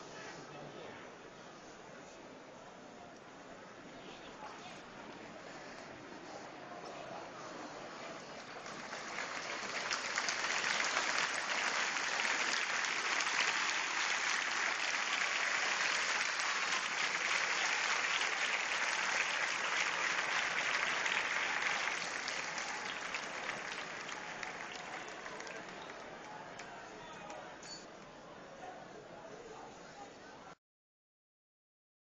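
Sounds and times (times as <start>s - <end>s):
crowd applauding: 8.4s - 26.7s.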